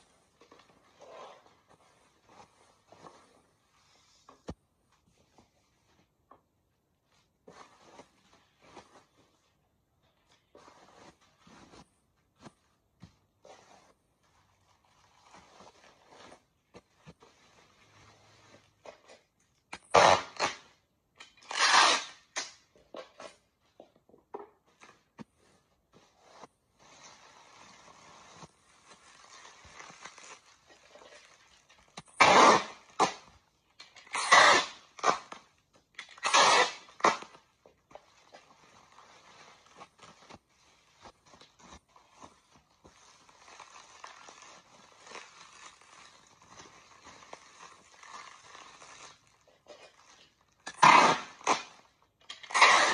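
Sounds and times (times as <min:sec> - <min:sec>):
bubble wrap rustling and crinkling: 0:10.2 - 0:18.8, 0:25.0 - 0:52.9.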